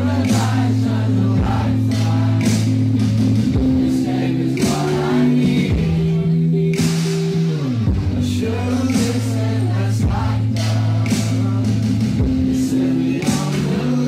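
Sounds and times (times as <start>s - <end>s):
electric guitar: 0.0s - 14.0s
live concert music: 0.0s - 14.0s
man singing: 3.8s - 14.0s.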